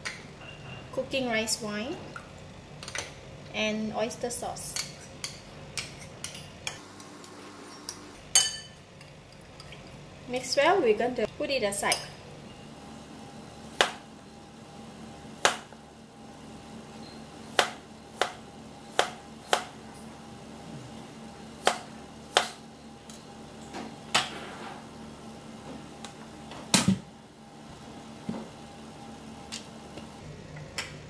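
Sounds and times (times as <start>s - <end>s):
knife chopping on plastic board: 19.0s - 19.7s.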